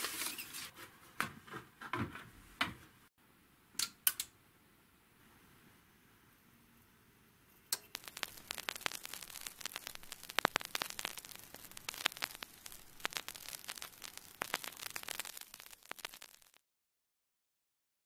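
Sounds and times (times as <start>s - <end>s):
vinyl record crackle: 0.0s - 0.7s, 7.7s - 16.6s
faint hiss: 4.7s - 16.6s.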